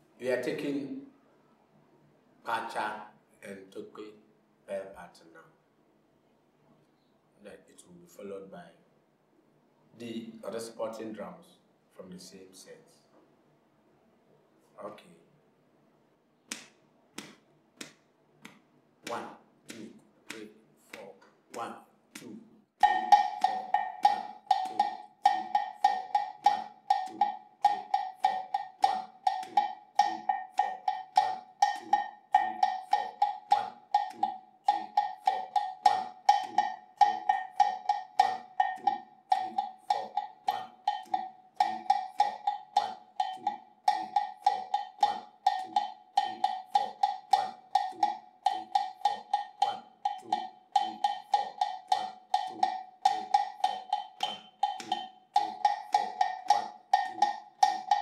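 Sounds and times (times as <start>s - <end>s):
hand bell struck with stick: 22.8s - 58.0s.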